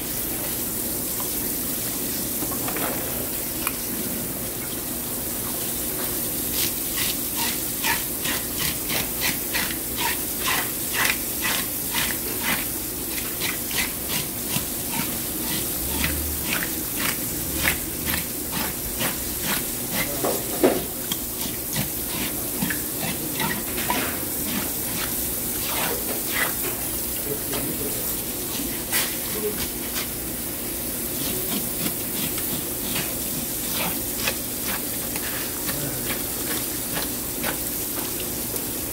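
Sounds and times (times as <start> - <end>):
scraper raking fish scales: 27.3 - 30.2, 31.1 - 37.8.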